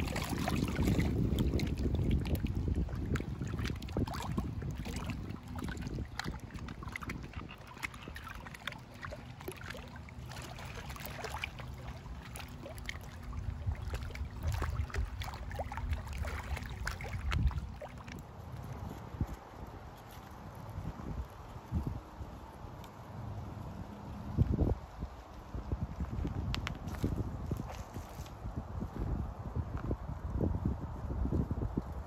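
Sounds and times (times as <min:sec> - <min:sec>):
small waves splashing on rocks: 0:00.0 - 0:13.3
wind rumbling on microphone: 0:00.0 - 0:32.0.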